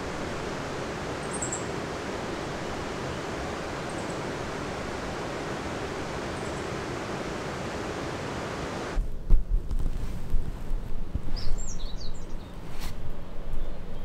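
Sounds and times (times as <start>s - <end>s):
rushing water hiss: 0.0s - 9.0s
wind rumbling on microphone: 0.0s - 14.0s
small bird chirping: 11.4s - 12.6s.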